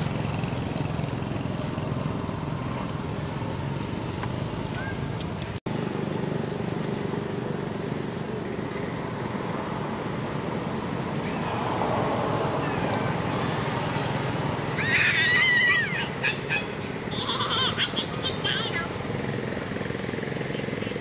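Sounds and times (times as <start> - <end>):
steady background noise: 0.0 - 21.0
monkey squealing: 14.8 - 18.9.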